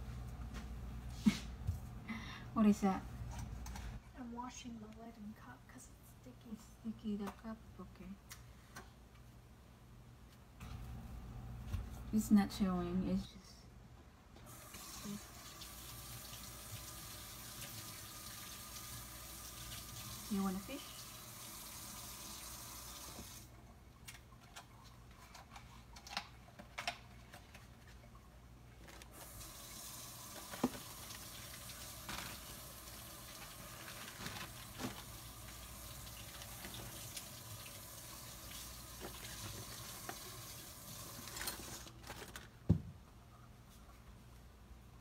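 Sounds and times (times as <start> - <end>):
kitchen tap running: 14.5 - 23.5, 29.1 - 42.0.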